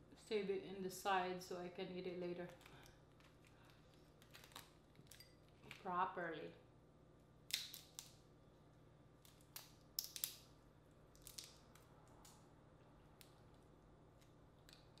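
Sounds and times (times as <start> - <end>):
crawfish shells cracking: 2.5 - 5.8, 7.5 - 8.2, 9.2 - 12.4, 13.1 - 15.0.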